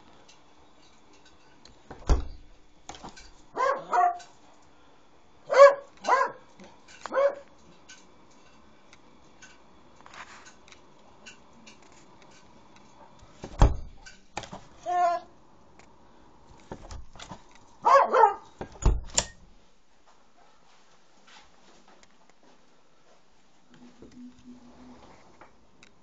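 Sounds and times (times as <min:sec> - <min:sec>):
dog barking: 0:03.5 - 0:04.3, 0:05.5 - 0:06.5, 0:07.1 - 0:07.5, 0:17.8 - 0:18.5.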